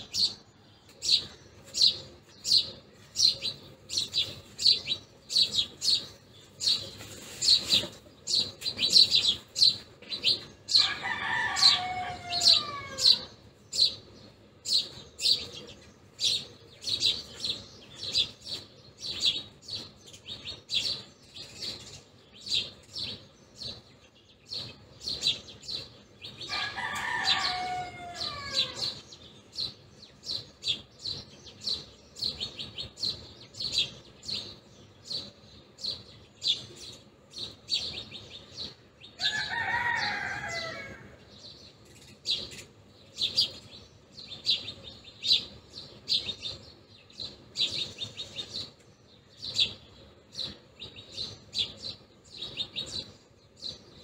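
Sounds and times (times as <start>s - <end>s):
sparrows chirping: 0.0s - 54.0s
rooster crowing: 10.7s - 13.3s, 26.5s - 29.0s, 39.2s - 41.3s.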